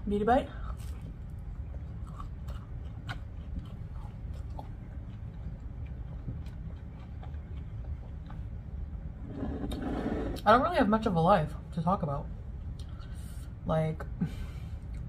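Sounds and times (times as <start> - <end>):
steady low hum: 0.0 - 15.0
soft mouth clicks chewing: 12.7 - 13.2.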